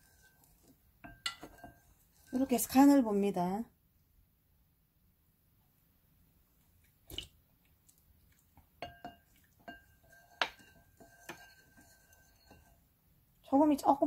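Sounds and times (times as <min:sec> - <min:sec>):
wooden spoon knocking ceramic bowl: 0:01.0 - 0:01.9, 0:08.8 - 0:11.7.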